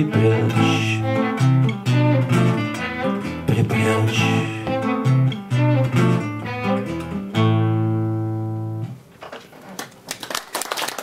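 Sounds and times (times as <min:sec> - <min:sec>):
acoustic guitar and violin: 0:00.0 - 0:09.0
audience applause: 0:09.8 - 0:11.0.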